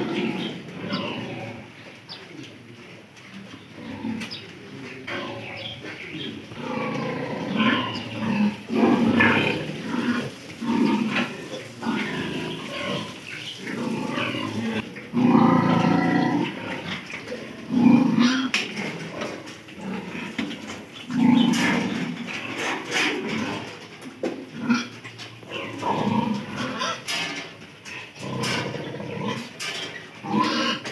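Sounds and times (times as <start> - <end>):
piglets grunting: 0.0 - 1.8, 5.0 - 20.4, 21.1 - 23.8, 27.9 - 29.6, 30.2 - 30.9.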